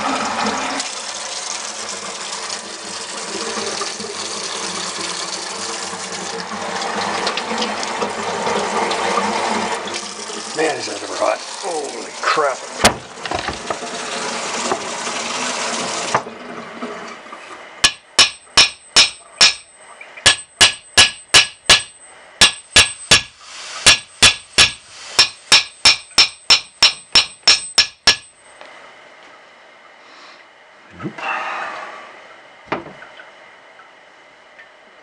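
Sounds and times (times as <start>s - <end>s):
hammer striking metal: 17.8s - 28.4s.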